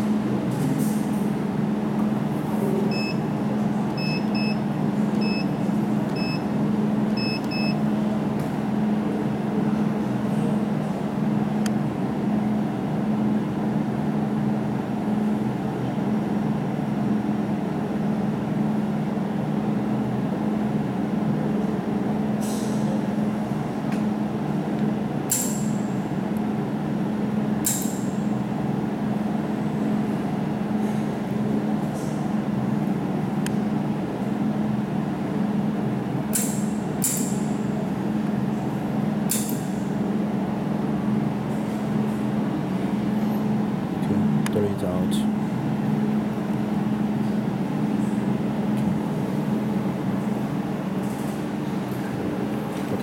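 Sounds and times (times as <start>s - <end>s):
machine electrical hum: 0.0s - 53.0s
short electronic beeps: 7.2s - 7.8s.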